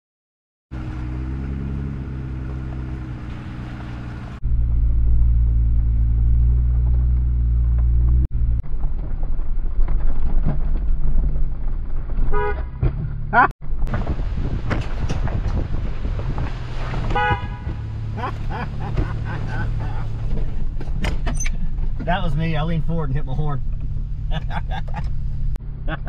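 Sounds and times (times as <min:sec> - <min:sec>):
deep engine rumble: 0:00.7 - 0:26.0
engine humming: 0:00.7 - 0:26.0
engine knocks: 0:04.6 - 0:22.4.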